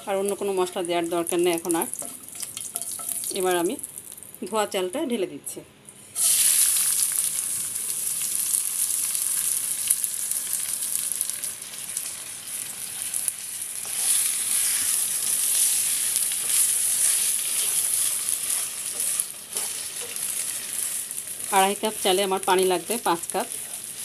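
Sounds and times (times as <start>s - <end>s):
rice sizzling in oil: 0.0s - 4.3s, 6.0s - 24.0s
wooden spatula stirring: 15.6s - 21.0s.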